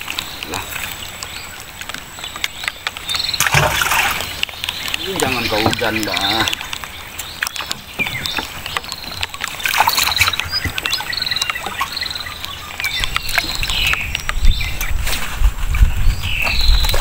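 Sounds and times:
birds chirping: 0.0 - 17.0
clicks and knocks on wooden boat: 1.8 - 11.9.

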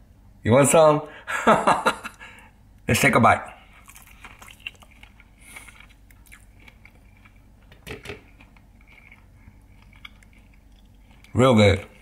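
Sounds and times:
person chewing: 3.6 - 12.0
crunchy bites: 3.8 - 7.5.

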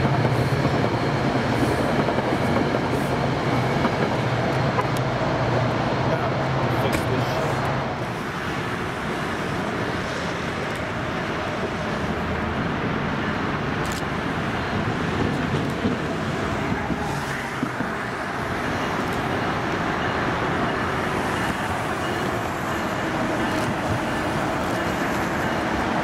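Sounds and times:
distant train approaching: 0.0 - 26.0
road traffic roar: 0.0 - 26.0.

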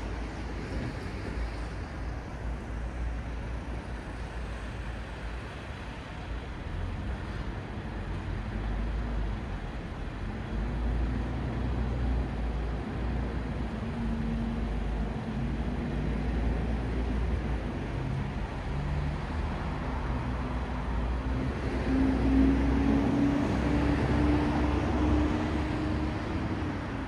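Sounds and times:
passing road traffic: 0.0 - 27.0.

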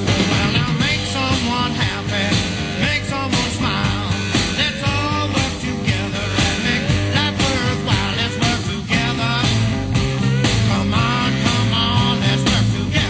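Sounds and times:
rock song with singing: 0.0 - 13.0.

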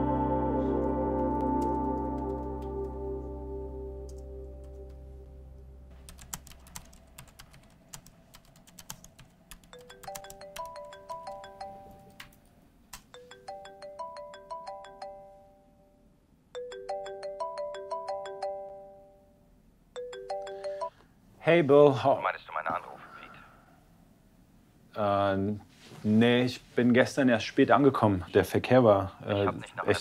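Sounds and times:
laptop keyboard typing: 6.0 - 15.1
phone ringtone chiming: 9.7 - 12.2, 13.1 - 15.8, 16.6 - 19.3, 20.0 - 21.0.

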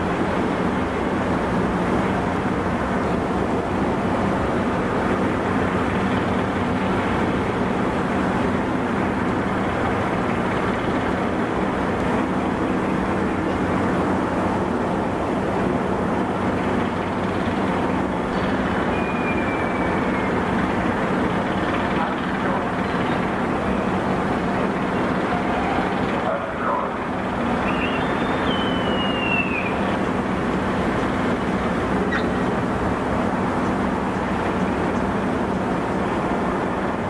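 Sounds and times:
low hum of ship machinery: 0.0 - 37.0
faint whistle: 18.9 - 20.4, 27.6 - 29.8.

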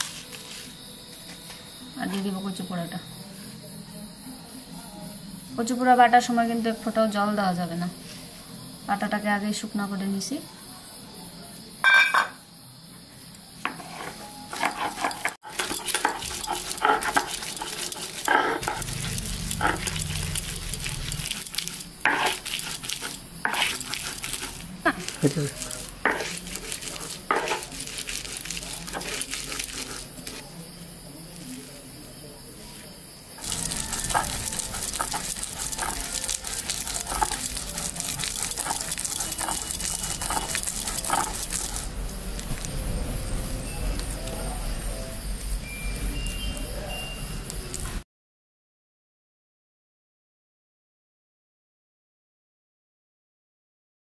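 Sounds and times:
stone-on-stone grinding: 13.7 - 30.4, 33.4 - 42.0
stone squeaks: 33.4 - 41.8.

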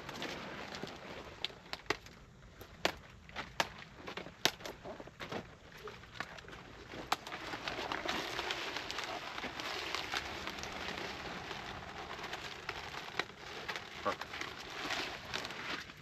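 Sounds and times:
leaves rustling and crackling: 5.9 - 16.0.

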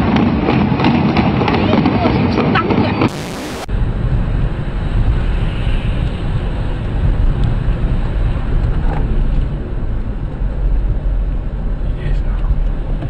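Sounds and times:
low car rumble: 0.0 - 13.0
tyre hiss on wet road: 4.8 - 8.3.

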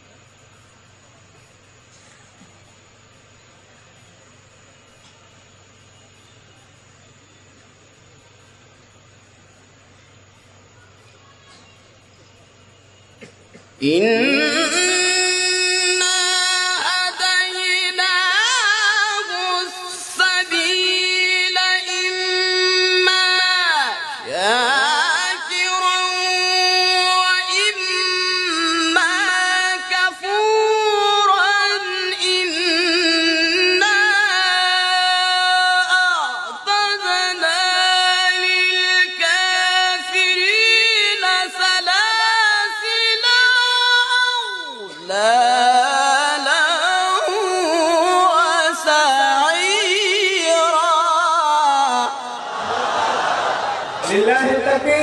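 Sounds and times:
man reciting melodically: 13.8 - 52.4, 54.0 - 55.0.

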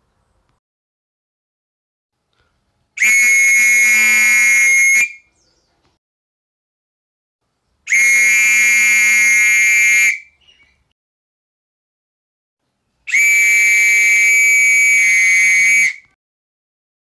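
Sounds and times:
whistle blasts: 3.0 - 5.3, 7.9 - 10.4, 13.1 - 16.2.

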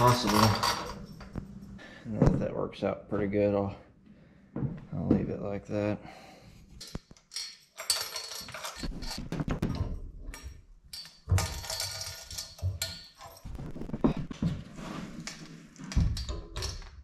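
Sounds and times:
rustling and scraping: 7.8 - 10.1, 11.3 - 16.8.

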